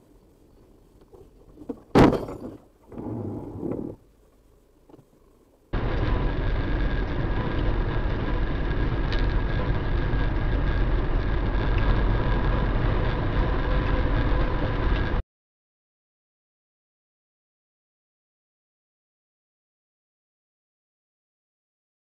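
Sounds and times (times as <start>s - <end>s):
car road and engine noise: 0.0s - 15.2s
faint steady hum: 0.0s - 15.2s.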